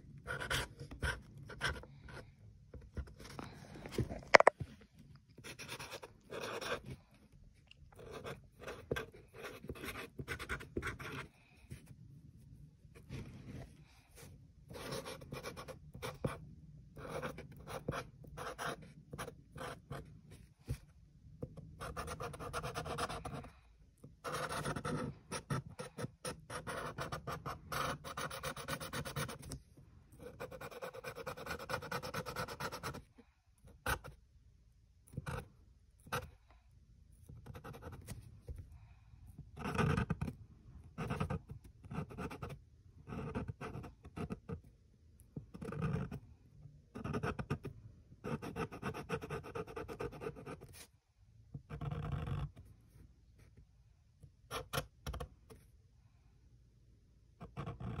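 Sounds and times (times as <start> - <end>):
marker scratching on paper: 0.2 - 2.2, 5.4 - 6.9, 8.0 - 11.9, 14.2 - 16.4, 17.0 - 20.0, 21.8 - 23.4, 24.2 - 29.6, 30.2 - 33.0, 39.6 - 40.3.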